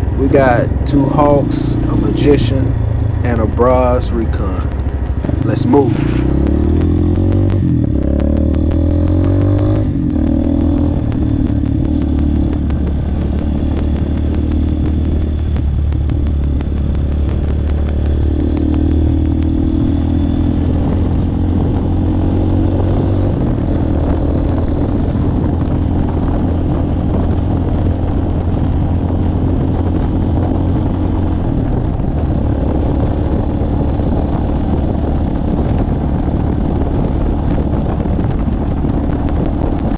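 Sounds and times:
motorcycle engine shifting gears: 0:00.0 - 0:39.9.

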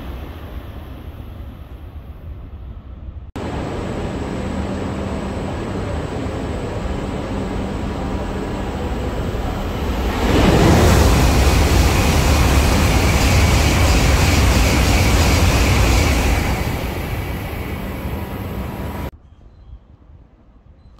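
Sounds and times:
faint constant hum: 0:00.0 - 0:09.8
train approaching: 0:00.0 - 0:19.1
wind noise: 0:00.0 - 0:19.1
low rumble of trains: 0:00.0 - 0:20.9.

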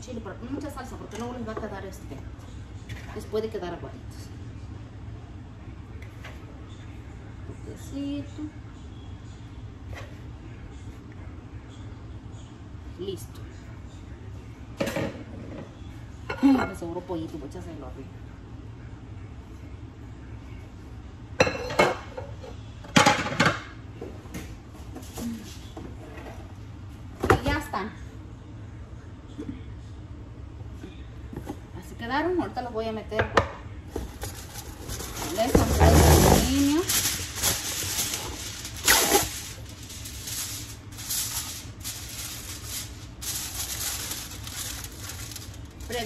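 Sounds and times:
aluminium foil crinkling: 0:34.0 - 0:46.0.

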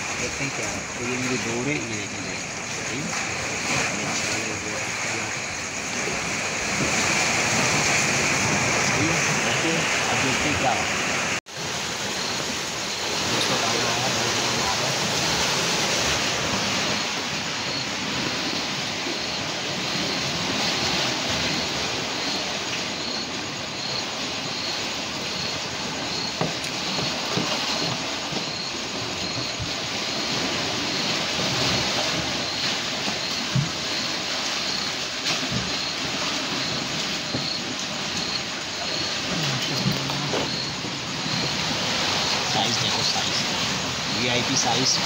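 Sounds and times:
seawater rushing: 0:00.0 - 0:45.0.

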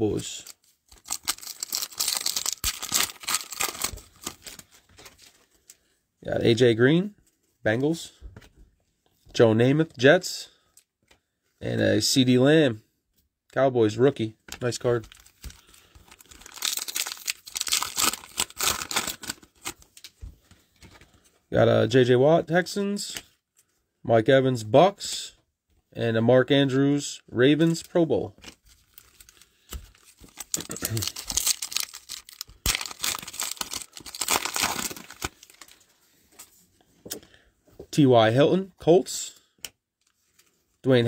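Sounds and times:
wrapper crinkling and tearing: 0:00.2 - 0:05.3, 0:14.7 - 0:20.1, 0:28.4 - 0:35.8
cards rustling: 0:00.2 - 0:05.9, 0:14.5 - 0:21.4, 0:27.6 - 0:36.5.

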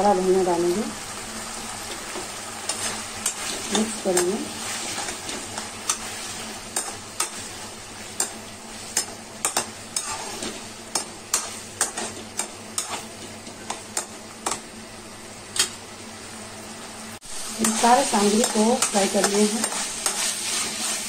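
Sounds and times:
food sizzling in a pan: 0:00.0 - 0:21.0
spatula scraping a pan: 0:02.6 - 0:13.8, 0:17.4 - 0:21.0.

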